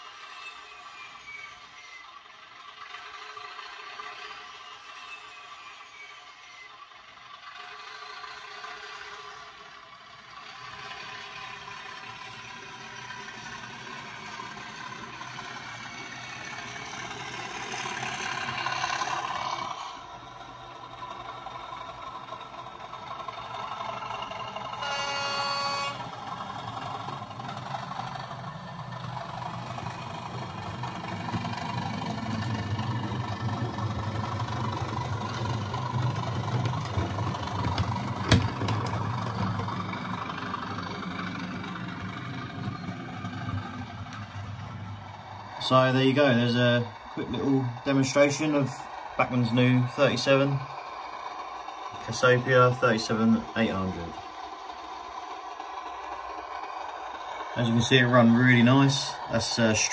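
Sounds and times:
model diesel engine drone: 0.0s - 59.9s
locomotive horn blast: 24.8s - 26.2s.

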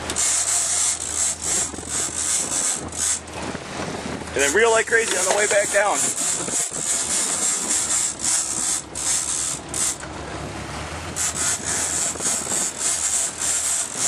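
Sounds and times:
boat engine humming: 0.0s - 14.0s
fishing reel cranked fast: 0.1s - 3.2s, 5.1s - 10.0s, 11.2s - 14.0s.

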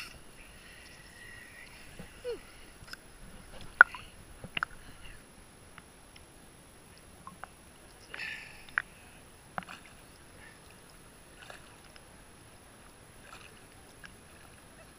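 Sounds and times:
sea water lapping: 0.0s - 5.4s, 6.9s - 14.9s
water clicks: 2.8s - 4.8s, 6.9s - 8.9s, 9.6s - 12.1s, 13.2s - 14.6s
water splash: 9.6s - 10.2s, 11.3s - 12.0s, 13.2s - 14.8s.

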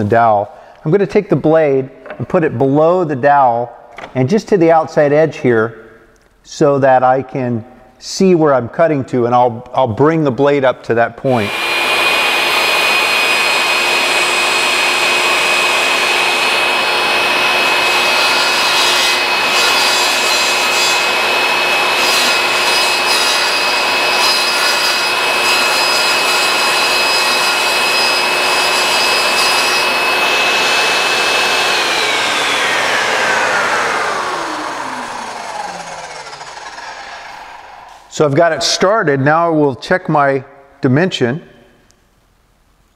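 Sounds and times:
table saw whining: 11.3s - 38.7s
saw blade rasping wooden dowel: 11.4s - 32.5s.

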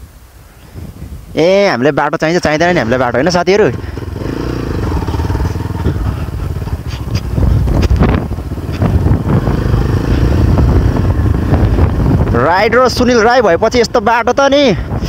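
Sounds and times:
motorcycle engine running: 2.8s - 14.3s.

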